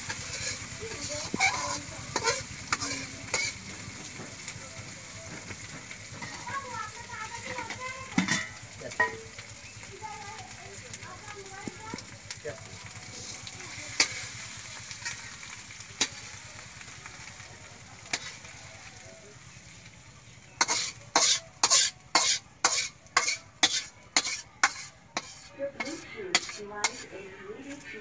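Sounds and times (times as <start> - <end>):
metal spatula scraping wok: 0.0 - 4.4, 5.5 - 6.7, 13.1 - 16.2, 18.1 - 18.6, 20.6 - 28.0
curry sizzling in a wok: 0.0 - 28.0.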